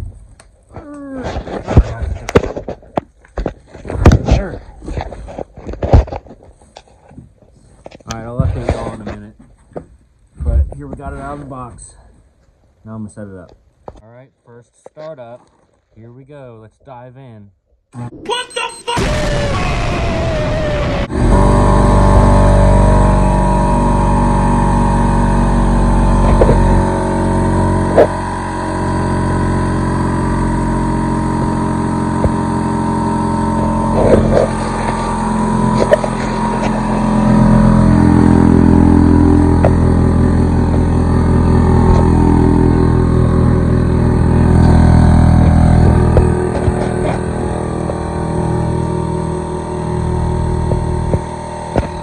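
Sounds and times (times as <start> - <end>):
air compressor motor running: 19.1 - 52.0.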